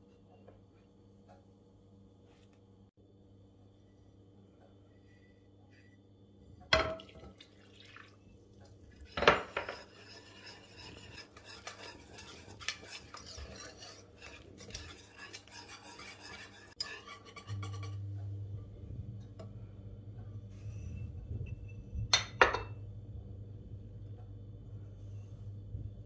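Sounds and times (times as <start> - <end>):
whisk scraping and clinking pot: 8.0 - 18.2.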